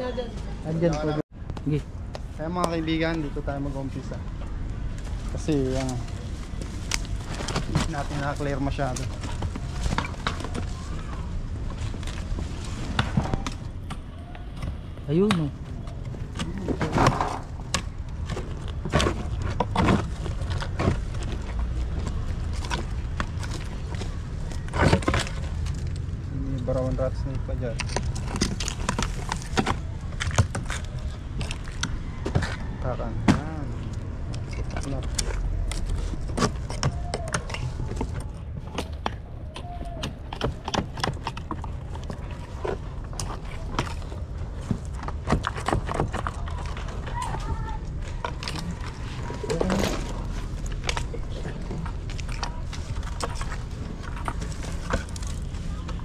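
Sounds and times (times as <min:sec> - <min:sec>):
hard objects knocking and clattering: 0:05.0 - 0:26.2.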